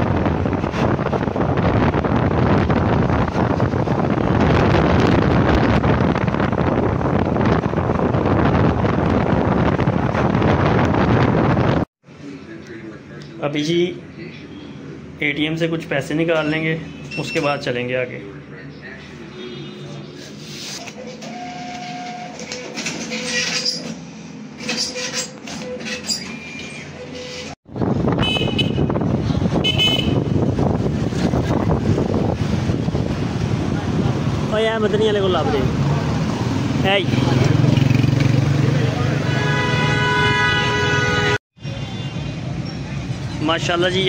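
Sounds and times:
wind rushing over microphone: 0.0s - 11.9s, 27.6s - 39.3s
motorcycle and road noise: 0.0s - 12.8s, 26.6s - 44.0s
cash dispenser whirring: 20.7s - 24.0s.

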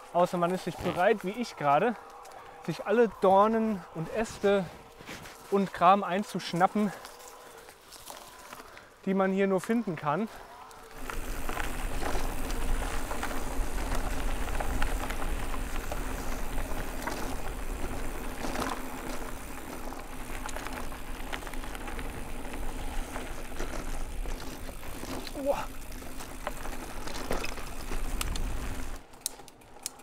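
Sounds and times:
tyres crunching on dirt and twigs: 0.0s - 30.0s
bike clicks and rattles: 6.4s - 8.9s, 10.4s - 30.0s.

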